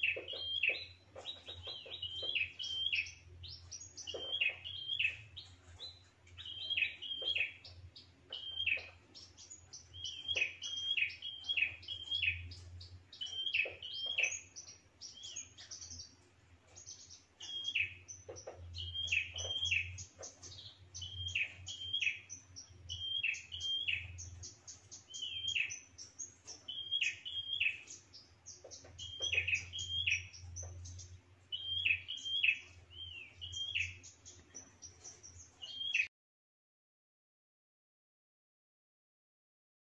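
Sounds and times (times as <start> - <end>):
bird chirping: 0.0 - 36.1.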